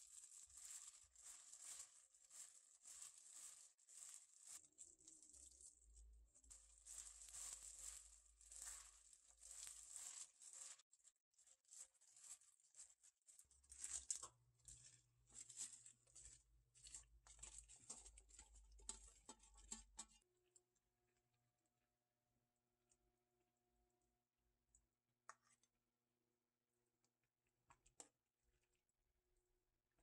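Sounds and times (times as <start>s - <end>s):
wet rustling of leaves: 0.0s - 20.1s.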